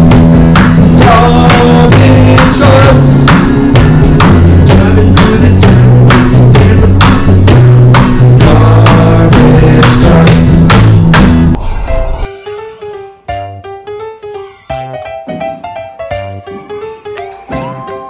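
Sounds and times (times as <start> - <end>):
steady drum beat: 0.0 - 11.6
bass line: 0.0 - 12.3
melody: 11.9 - 18.0.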